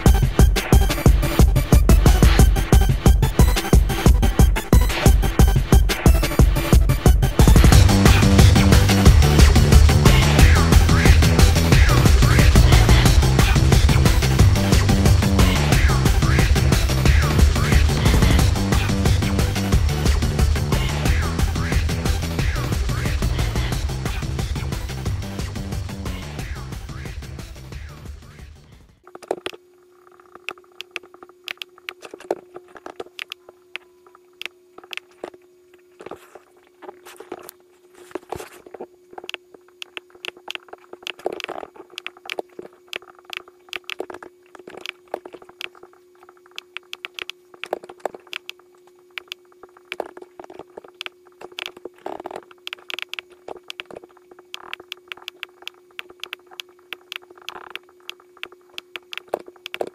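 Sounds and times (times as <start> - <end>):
electrical hum: 0.0 - 59.9
computer mouse clicking: 30.3 - 33.8, 34.4 - 35.2, 39.2 - 48.6, 49.2 - 59.9.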